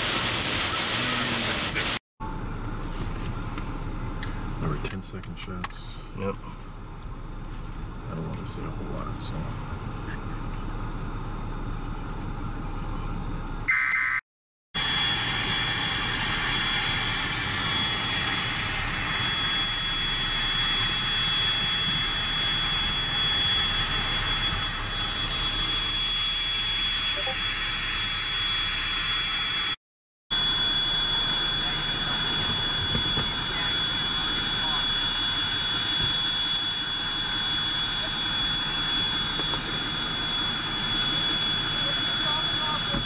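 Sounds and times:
machine hiss with high whine: 0:14.8 - 0:43.0.

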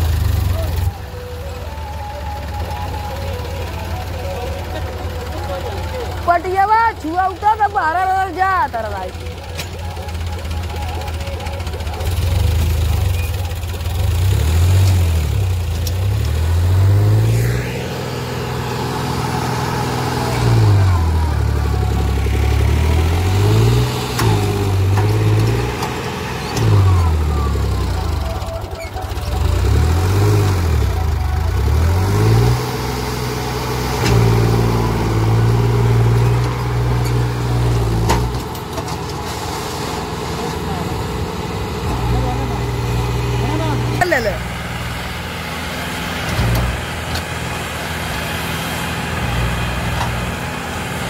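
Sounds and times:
tractor diesel engine revving: 0:00.0 - 0:51.0.

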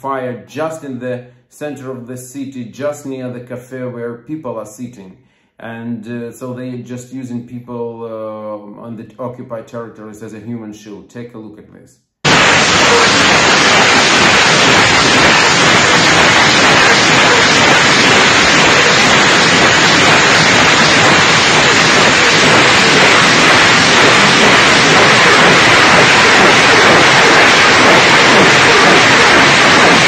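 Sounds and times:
rocket launcher salvo rushing: 0:12.3 - 0:30.0.

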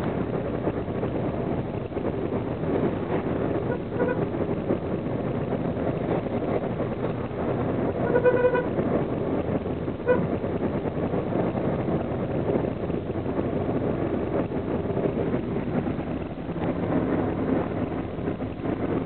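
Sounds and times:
vehicle road and engine noise: 0:00.0 - 0:19.0
vehicle horn beeping: 0:03.7 - 0:04.2, 0:08.0 - 0:08.7, 0:10.1 - 0:10.3.

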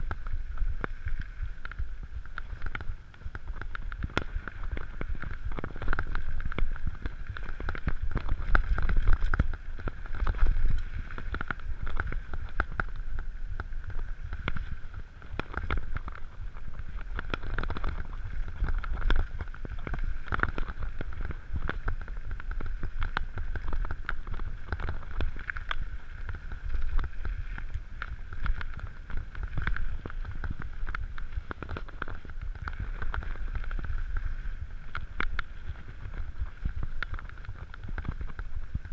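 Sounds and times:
bike rattling on bumps: 0:00.0 - 0:38.9
bike tyres on dirt and stones: 0:00.0 - 0:38.9
wind on microphone: 0:00.0 - 0:38.9.

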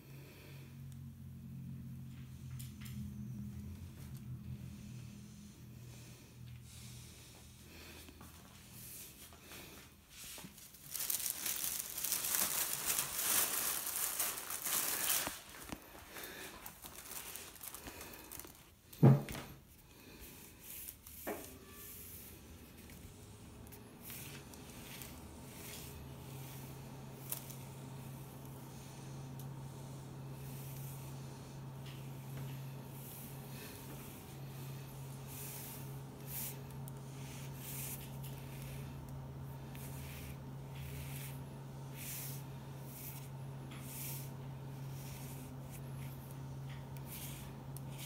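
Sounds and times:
plastic bag crinkling: 0:10.3 - 0:19.0, 0:22.6 - 0:28.4.

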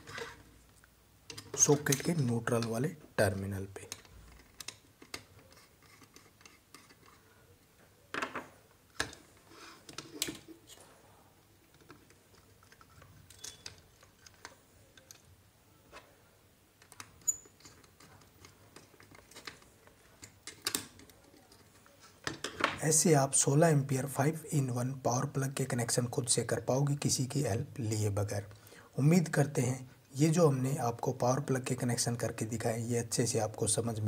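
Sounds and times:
screwdriver scraping and clicking on screw: 0:03.9 - 0:07.2, 0:11.7 - 0:15.2.

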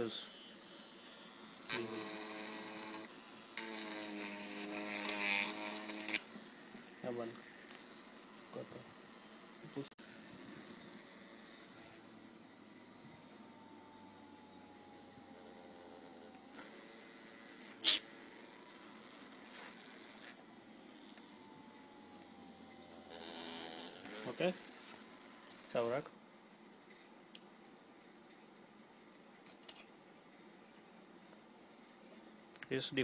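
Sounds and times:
small motor whirring: 0:00.0 - 0:26.1.

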